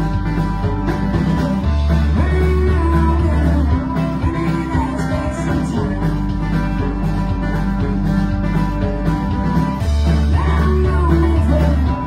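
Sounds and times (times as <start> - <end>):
banjo strumming: 0.0 - 12.0
drums and bass: 0.0 - 12.0
person singing: 0.7 - 8.0, 10.0 - 12.0.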